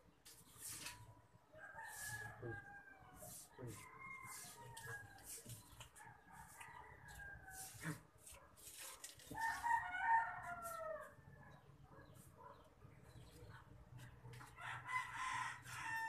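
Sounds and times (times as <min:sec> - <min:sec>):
hands scratching potting soil: 0:00.2 - 0:11.2
rooster crowing: 0:09.3 - 0:11.3, 0:14.6 - 0:16.0.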